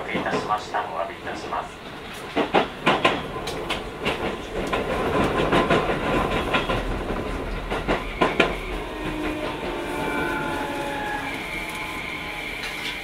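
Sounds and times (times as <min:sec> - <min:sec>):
train rolling rumble: 0:00.0 - 0:13.0
train wheels clacking over rail joints: 0:02.1 - 0:10.8.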